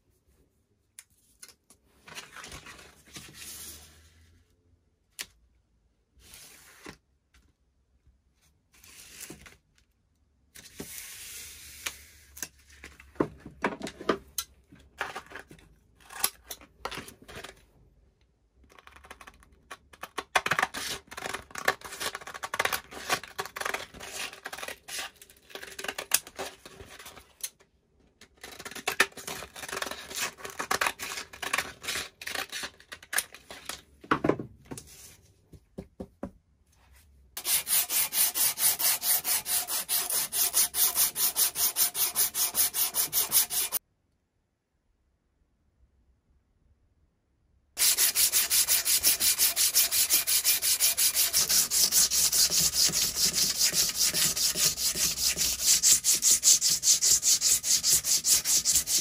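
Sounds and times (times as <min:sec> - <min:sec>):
abrasive strip rasping on metal: 0:37.4 - 0:43.8
scissors cutting sanding cloth: 0:37.4 - 0:43.8, 0:47.8 - 0:59.0.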